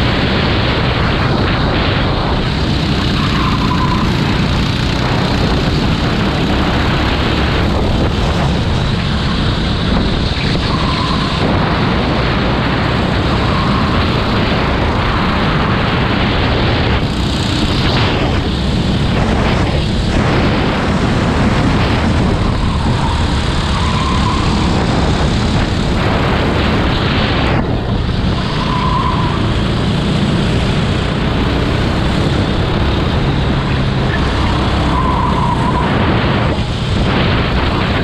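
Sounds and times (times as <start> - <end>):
go-kart engine running: 0.0 - 38.0
wind buffeting microphone: 0.0 - 38.0.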